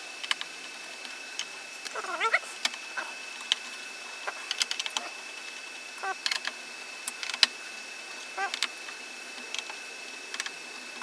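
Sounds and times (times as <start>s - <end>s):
faint high whine: 0.0s - 11.0s.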